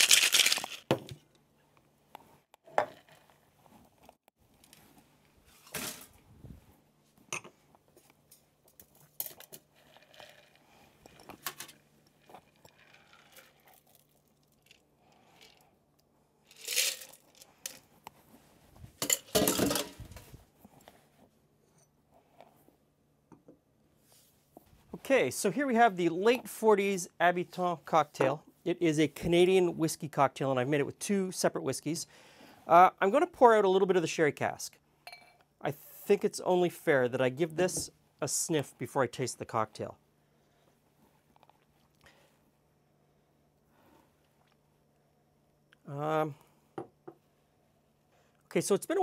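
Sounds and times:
ice rattling in shaker: 0.0 - 1.0, 12.4 - 14.8, 16.5 - 17.4.

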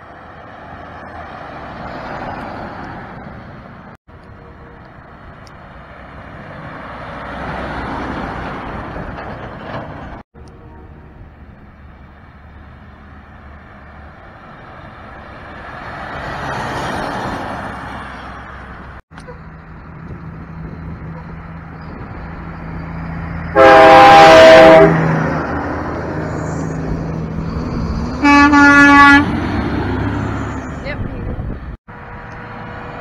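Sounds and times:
truck engines passing: 0.0 - 33.0
truck air horn blasts: 23.5 - 25.0, 28.2 - 29.3.

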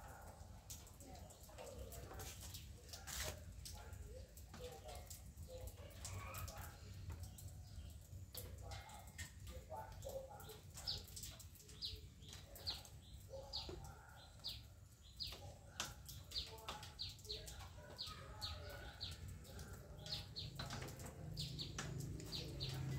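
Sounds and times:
small birds chirping: 0.0 - 22.9.

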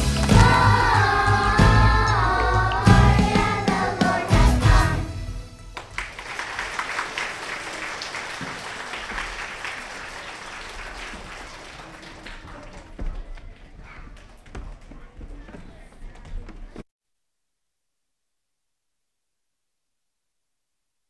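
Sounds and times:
audience applause: 0.0 - 3.4, 5.8 - 14.9
children's choir singing: 0.0 - 5.4.

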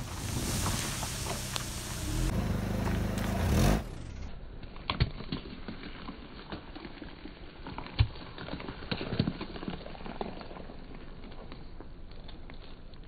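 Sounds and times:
tyre crunching over gravel: 0.0 - 4.1.

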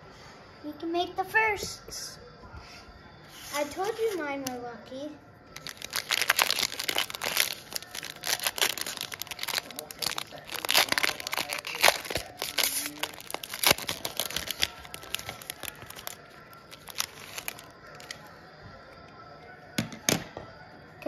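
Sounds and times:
foil wrapper crinkling: 5.6 - 18.3.

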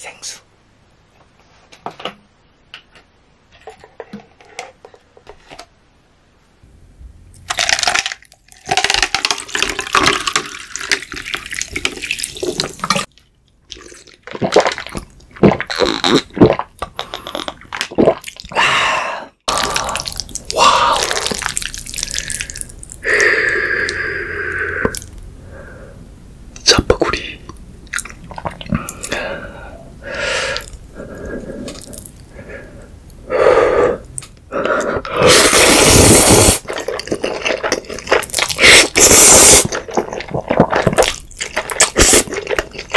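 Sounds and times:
loud gulps: 13.7 - 25.2, 27.4 - 32.7.

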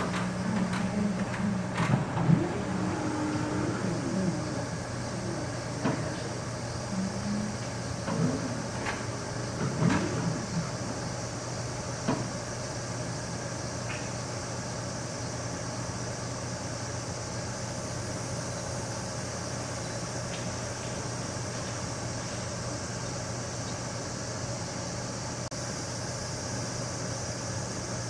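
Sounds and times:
low mechanical hum: 0.0 - 28.0.

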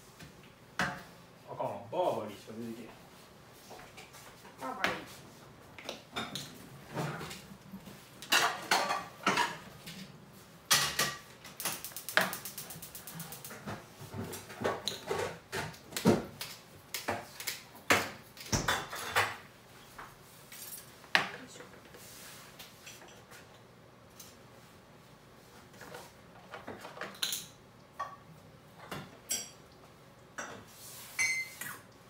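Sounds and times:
dishes and pans clattering: 8.2 - 9.8, 10.7 - 11.3, 13.6 - 16.3, 17.9 - 19.4.

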